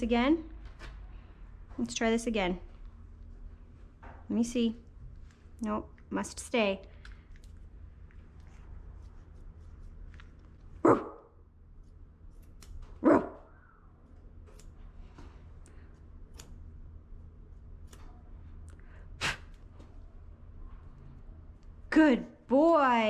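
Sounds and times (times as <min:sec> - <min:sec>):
puppy barking: 0:10.8 - 0:11.3, 0:13.0 - 0:13.5.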